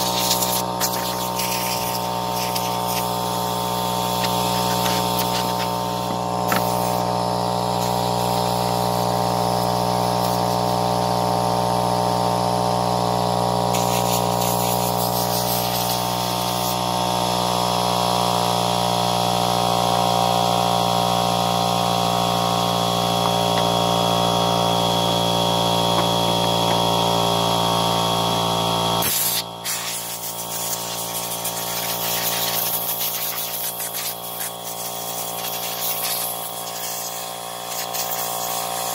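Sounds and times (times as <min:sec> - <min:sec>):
blow gun hissing air: 0:00.0 - 0:11.0, 0:13.7 - 0:16.8, 0:29.0 - 0:38.9
air compressor humming: 0:00.0 - 0:38.9.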